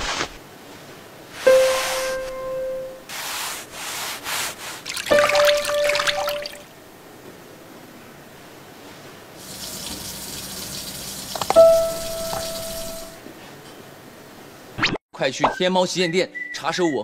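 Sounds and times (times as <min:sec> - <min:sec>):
tap water splashing: 0:04.9 - 0:06.6, 0:09.5 - 0:13.0.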